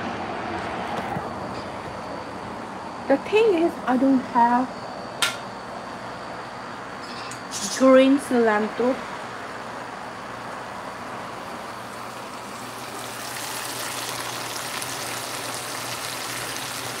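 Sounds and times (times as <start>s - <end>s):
food sizzling in a pan: 11.5s - 17.0s.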